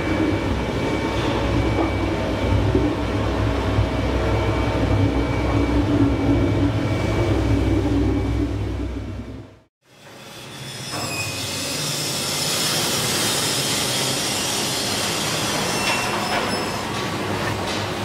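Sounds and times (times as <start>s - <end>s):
meat-processing machinery rushing: 10.0s - 18.0s.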